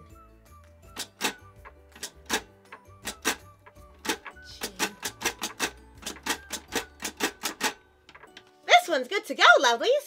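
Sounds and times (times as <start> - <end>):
braille typewriter keys clacking: 1.0 - 8.4.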